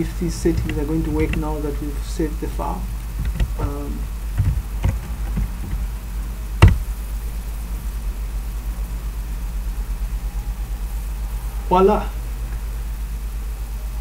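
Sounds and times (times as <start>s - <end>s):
steady low hum: 0.0s - 14.0s
keyboard typing: 0.4s - 1.6s, 3.2s - 5.9s.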